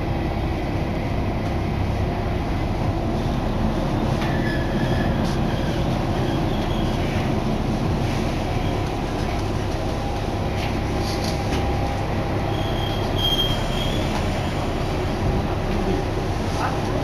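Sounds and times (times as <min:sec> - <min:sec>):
train running rumble: 0:00.0 - 0:17.0
wheel squeal: 0:12.5 - 0:14.2.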